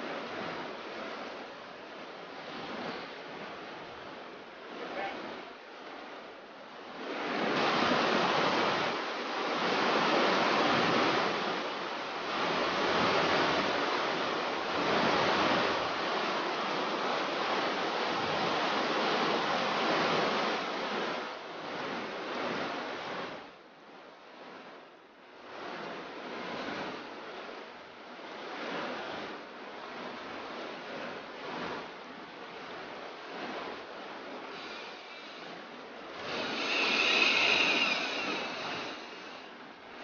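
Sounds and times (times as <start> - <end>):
wind noise: 29.9 - 40.0.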